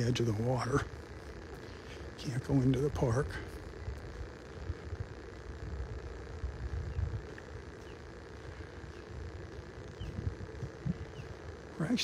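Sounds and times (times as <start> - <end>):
wind buffeting microphone: 3.7 - 11.7.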